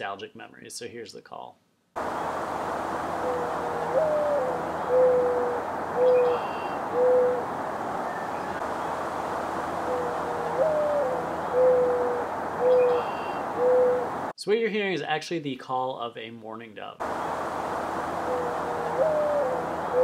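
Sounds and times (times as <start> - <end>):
steady background hiss: 1.9 - 20.0
mourning dove cooing: 2.2 - 14.3, 17.0 - 20.0.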